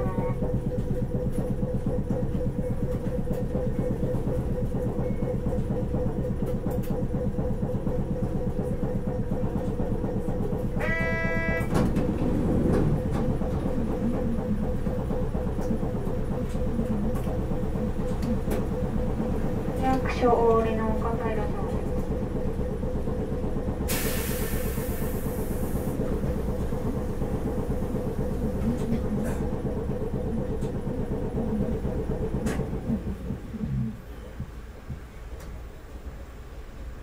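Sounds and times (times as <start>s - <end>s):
running gear hum: 0.0s - 37.0s
streetcar rumbling on rails: 0.0s - 37.0s
short pitched tone: 10.8s - 11.9s.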